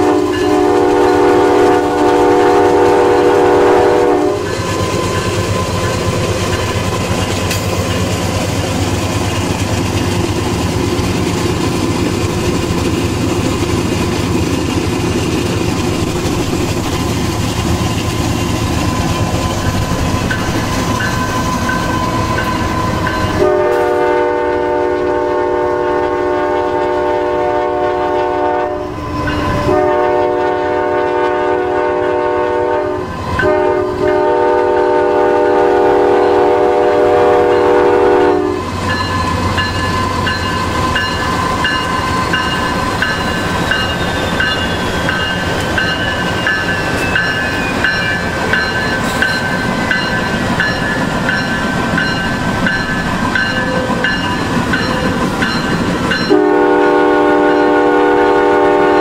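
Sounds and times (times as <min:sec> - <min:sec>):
locomotive air horn blasts: 0:00.0 - 0:04.6, 0:22.9 - 0:38.7, 0:56.3 - 0:59.0
train rolling on rails: 0:00.0 - 0:59.0
locomotive engine rumble: 0:00.6 - 0:25.4.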